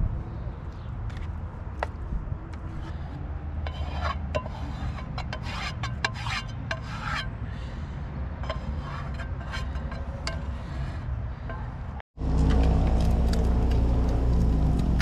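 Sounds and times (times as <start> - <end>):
utensil scraping frying pan: 3.6 - 7.4, 8.4 - 11.6.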